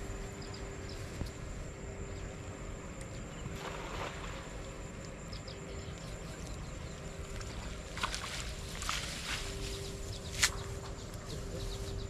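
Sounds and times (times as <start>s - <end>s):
wet net rustling and splashing: 7.3s - 10.8s.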